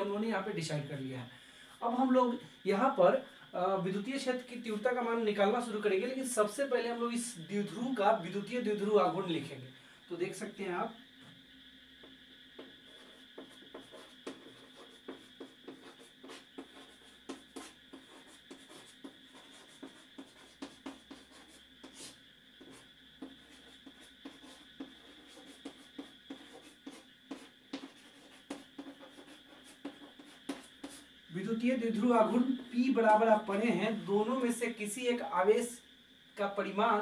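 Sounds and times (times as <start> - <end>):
faint steady hum: 0.0 - 37.0
chalk tapping and scratching: 12.0 - 31.1.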